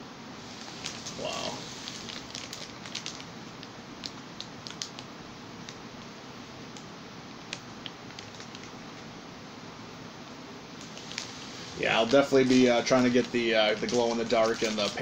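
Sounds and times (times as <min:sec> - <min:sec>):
background hiss: 0:00.0 - 0:15.0
plastic bag crinkling: 0:00.6 - 0:05.8, 0:10.8 - 0:15.0.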